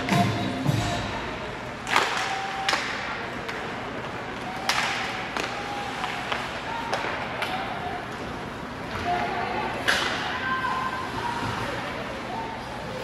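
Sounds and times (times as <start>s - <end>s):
hockey sticks and puck clacking: 1.7s - 10.4s.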